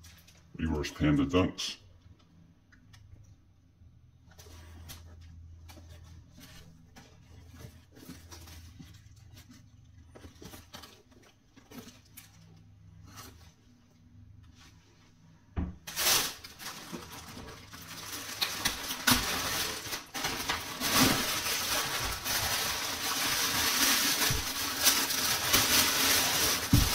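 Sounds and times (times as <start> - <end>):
plastic mailer bags crinkling: 15.9 - 26.9.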